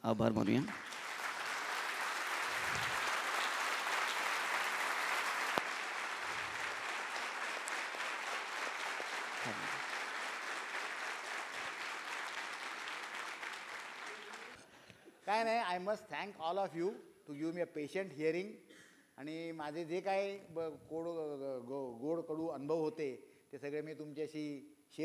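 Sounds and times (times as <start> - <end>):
audience applauding: 0.5 - 14.6.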